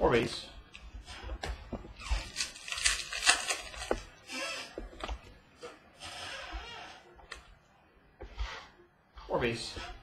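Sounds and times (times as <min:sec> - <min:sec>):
card pack wrapper crinkling and ripping: 0:02.2 - 0:04.1.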